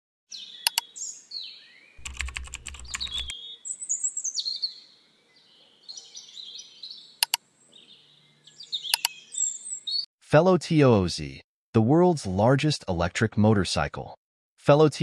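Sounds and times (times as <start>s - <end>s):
bird-like chirps: 0.3s - 10.1s
sharp clicks: 2.0s - 3.3s, 7.2s - 7.4s, 8.9s - 9.2s.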